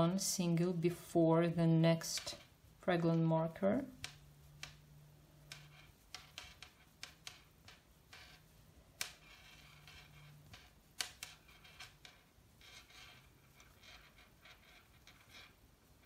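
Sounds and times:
crochet hook clicks and yarn rustling: 2.1 - 8.0, 9.8 - 12.2.

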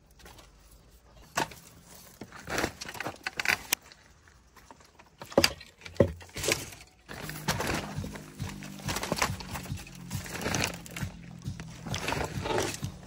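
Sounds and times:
cane matting crackling and rattling: 0.0 - 13.0
music: 7.1 - 13.0.

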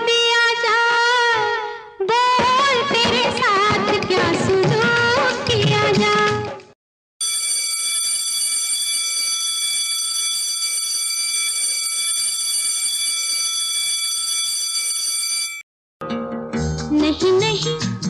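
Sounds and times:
music: 1.8 - 6.7, 16.0 - 18.0.

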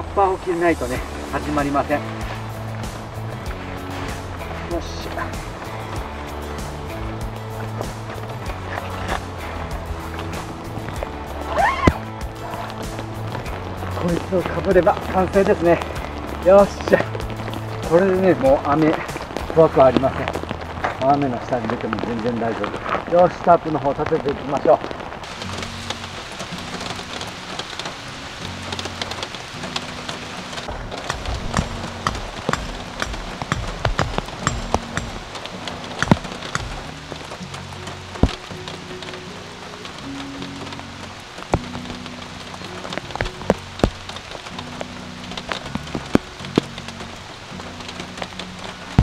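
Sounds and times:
faint background music: 0.0 - 49.0
rain falling in a forest: 0.0 - 49.0
raindrops tapping: 0.0 - 49.0
drops tapping close by: 30.9 - 38.5.

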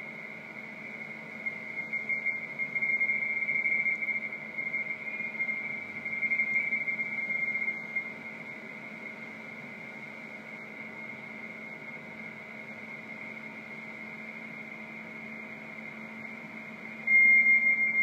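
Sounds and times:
two-tone data warble: 17.0 - 18.0.

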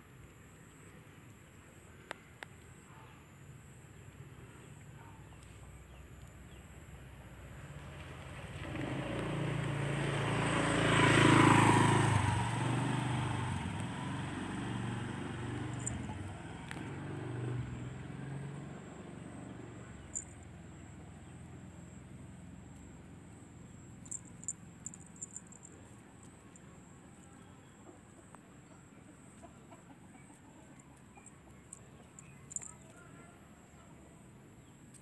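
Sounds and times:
motorbike passing: 7.6 - 26.8.

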